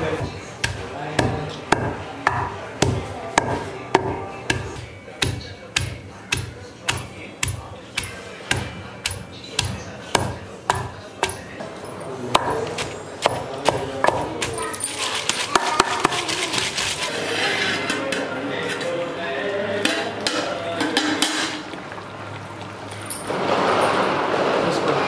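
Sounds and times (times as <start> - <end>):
pestle pounding in stone mortar: 0.1 - 11.5, 12.3 - 17.0.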